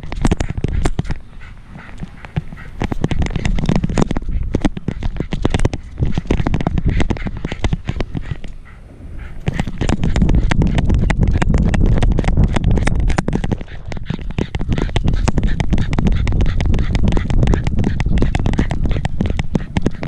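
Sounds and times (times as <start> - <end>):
camera rattling in dog harness: 0.0 - 8.6, 9.3 - 20.0
wind rumble on microphone: 0.0 - 20.0.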